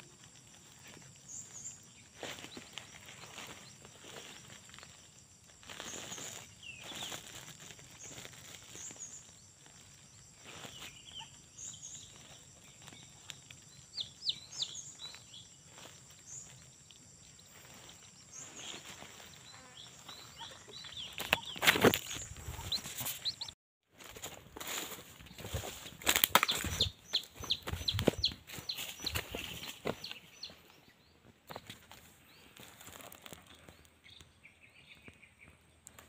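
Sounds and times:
steady high insect hum: 0.0 - 21.3
rustling in grass and leaves: 0.0 - 33.9.

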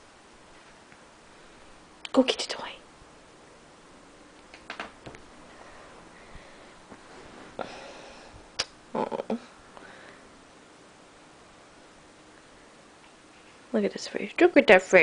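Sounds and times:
rustling: 4.4 - 7.8.

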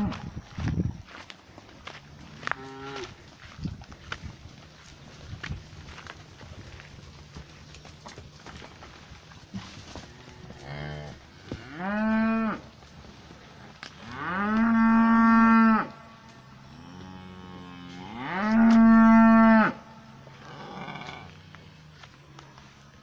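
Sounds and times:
cows mooing: 2.2 - 3.2, 9.9 - 12.7, 13.4 - 22.1.

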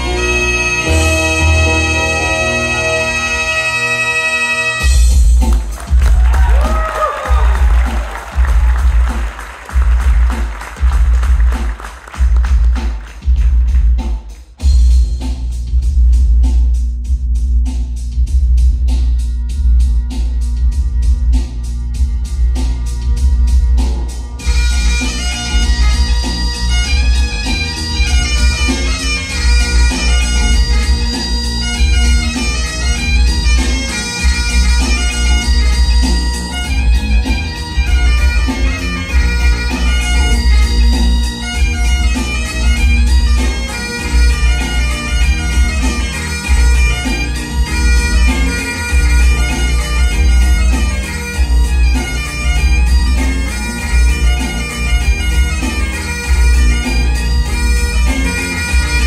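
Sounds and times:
bagpipe playing: 0.0 - 6.0, 19.3 - 59.0.

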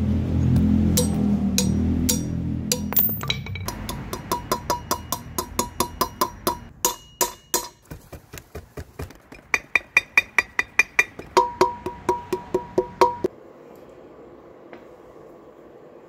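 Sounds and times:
hammer striking metal socket: 1.0 - 7.8.

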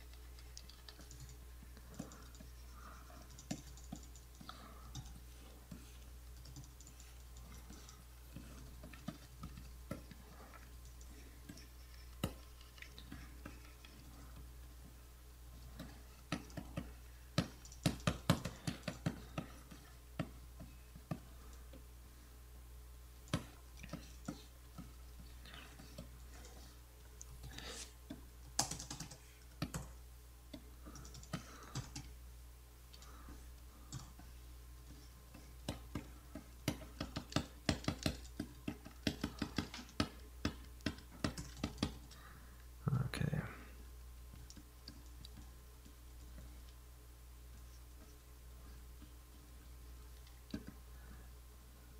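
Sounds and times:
keyboard keystrokes and clicks: 0.0 - 14.5, 15.7 - 21.8, 28.1 - 32.1, 35.3 - 42.2
steady low hum: 0.0 - 51.9.

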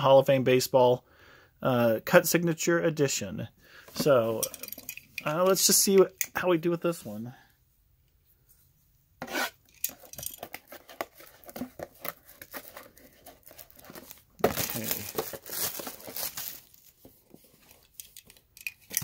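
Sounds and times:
plastic wrap crinkling and tearing: 10.6 - 17.1.

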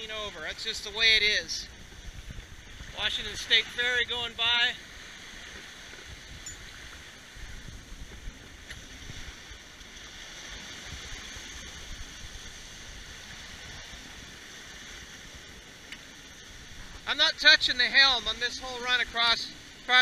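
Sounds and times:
wind rumble on microphone: 0.0 - 19.9
water splashing along a hull: 0.0 - 20.0.

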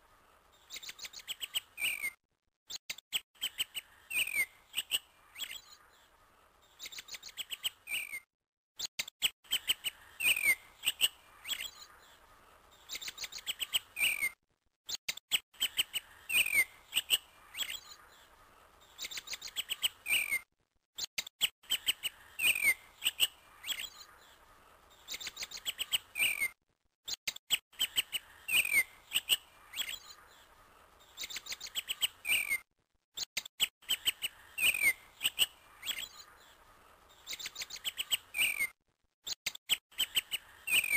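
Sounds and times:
birds chirping and whistling: 0.7 - 2.2, 3.1 - 5.8, 6.7 - 8.2, 9.5 - 11.9, 12.8 - 14.4, 15.3 - 18.2, 18.8 - 20.4, 21.4 - 26.6, 27.5 - 32.6, 33.2 - 40.9.

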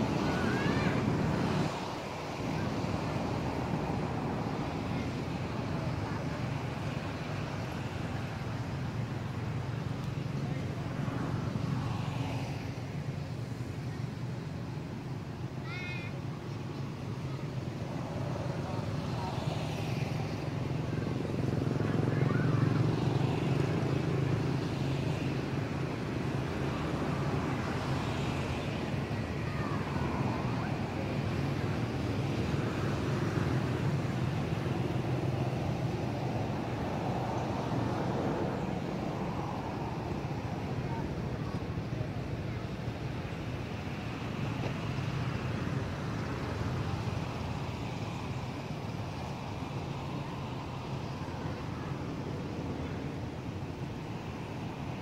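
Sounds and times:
traffic rumble: 0.0 - 55.0.

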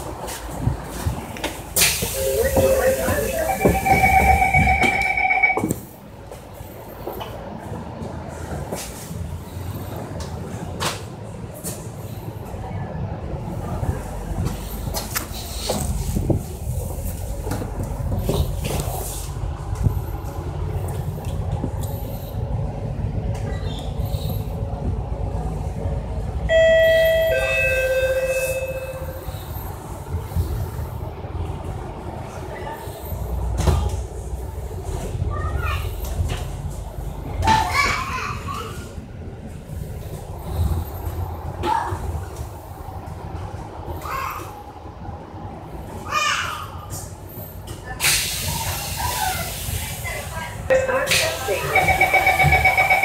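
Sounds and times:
bus running rumble: 0.0 - 53.0
steady electronic tone: 2.2 - 5.7, 50.7 - 53.0
two-note bus bell chime: 2.2 - 5.8, 26.5 - 29.4, 51.6 - 53.0.

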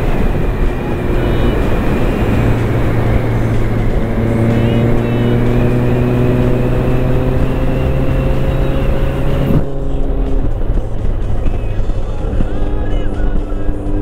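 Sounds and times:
motorcycle engine running: 0.0 - 14.0
wind rush on microphone: 0.0 - 14.0.

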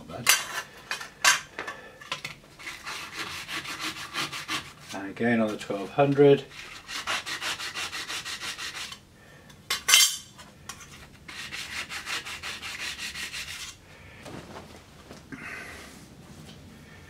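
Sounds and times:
scraper rasping on sharpening stone: 2.6 - 4.8, 6.5 - 9.0, 11.3 - 13.8.

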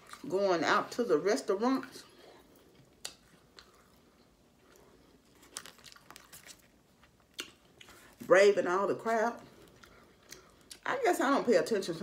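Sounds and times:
quiet chewing: 0.0 - 0.3, 1.8 - 8.3, 9.4 - 10.9.

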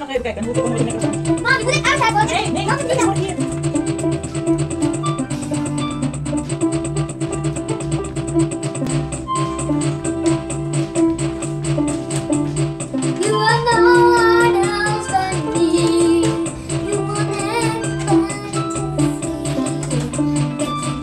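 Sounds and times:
steady beat: 0.0 - 21.0
electronic keyboard melody: 0.4 - 21.0
girl singing: 13.2 - 20.5.

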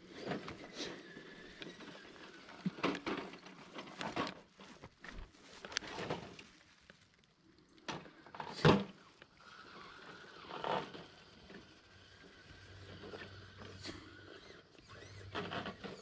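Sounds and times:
footsteps crunching on dirt trail: 1.0 - 7.3.

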